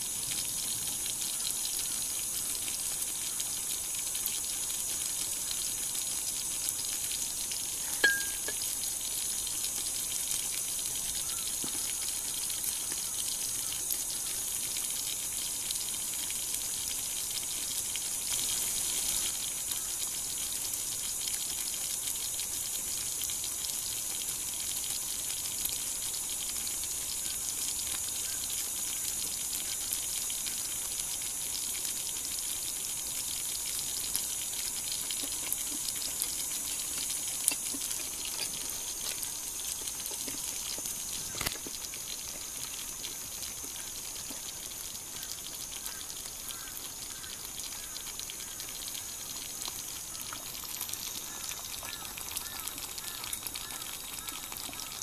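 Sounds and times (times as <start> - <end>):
steady hiss: 0.0 - 55.0.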